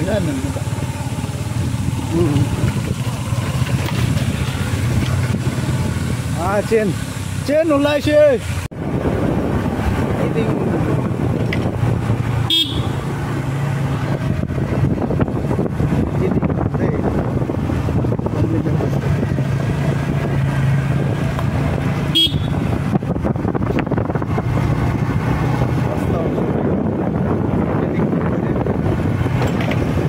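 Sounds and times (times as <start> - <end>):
motorcycle engine running: 0.0 - 30.0
wind and road noise: 0.0 - 30.0
short horn beep: 12.5 - 13.0, 22.2 - 22.6.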